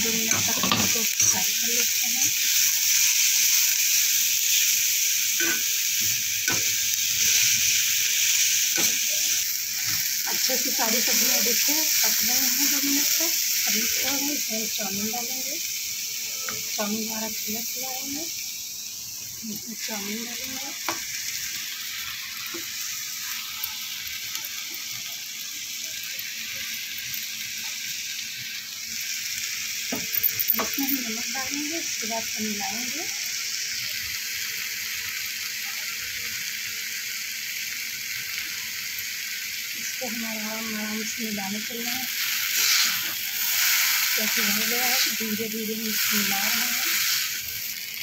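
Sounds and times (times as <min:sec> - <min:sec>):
vegetables sizzling in hot oil: 0:00.0 - 0:48.0
metal spatula scraping pan: 0:42.5 - 0:43.1.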